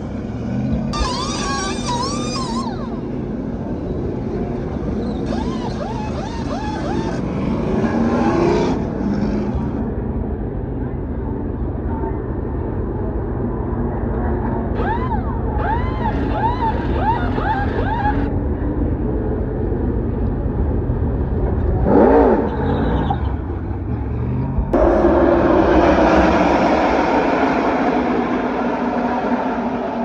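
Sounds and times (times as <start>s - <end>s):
trucks racing past: 0.0s - 10.0s, 14.8s - 18.3s, 21.6s - 30.0s
engine rev: 0.0s - 10.1s, 14.8s - 18.3s, 21.0s - 30.0s
rumble of truck engines: 0.0s - 30.0s.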